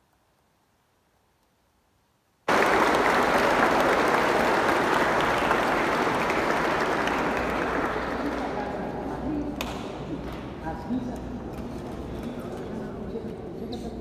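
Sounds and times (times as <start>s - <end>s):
crowd applause: 2.5s - 9.0s.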